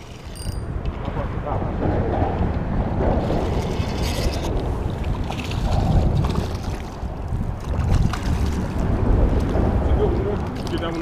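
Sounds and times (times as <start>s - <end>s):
wind rumbling on microphone: 0.0s - 11.0s
water lapping against rocks: 3.2s - 9.6s.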